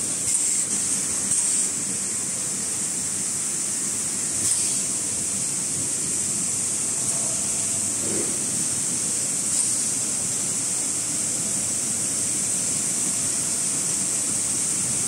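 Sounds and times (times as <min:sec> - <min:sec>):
packaging machine hissing: 0:00.2 - 0:01.7, 0:04.4 - 0:04.8.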